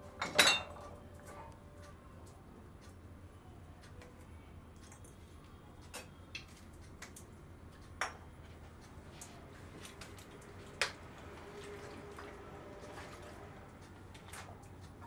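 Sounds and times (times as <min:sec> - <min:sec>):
glass bottles clinking: 0:00.2 - 0:00.9.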